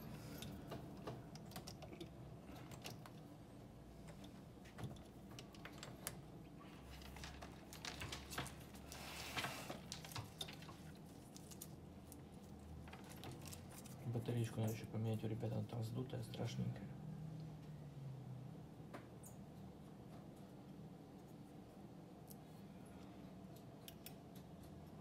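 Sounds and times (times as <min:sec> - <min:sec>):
typing on computer keyboard: 0:01.0 - 0:03.2.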